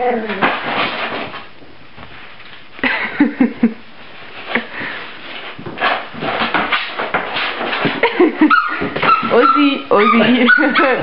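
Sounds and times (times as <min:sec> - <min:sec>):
puppies snuffling and scrabbling: 0:04.0 - 0:11.0
small puppy noises: 0:08.4 - 0:11.0.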